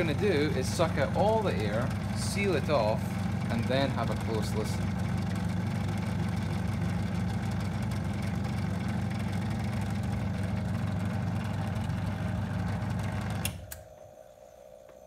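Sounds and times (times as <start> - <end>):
electric vacuum pump running: 0.0 - 14.2.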